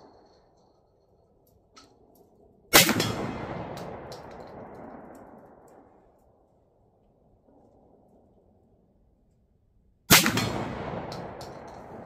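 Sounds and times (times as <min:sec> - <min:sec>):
shotgun shot with echo: 0:02.7 - 0:04.6, 0:10.1 - 0:12.0.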